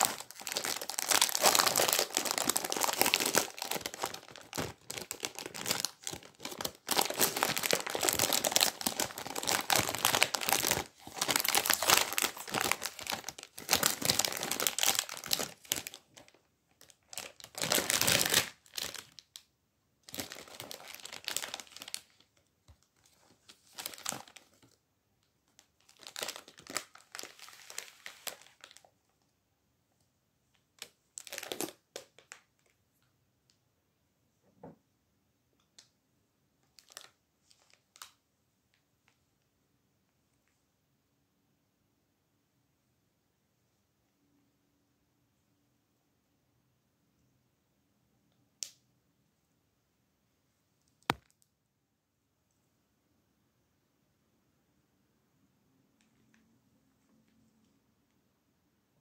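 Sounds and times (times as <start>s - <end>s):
foil wrapper crinkling: 0.0s - 19.2s.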